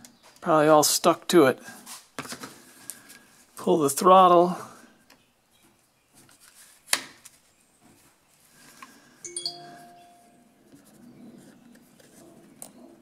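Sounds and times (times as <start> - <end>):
metallic clink with ringing tone: 9.3 - 10.4.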